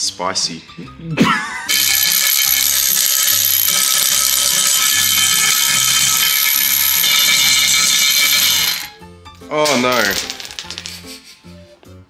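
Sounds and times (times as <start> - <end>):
cordless ratchet motor whine: 1.7 - 8.9.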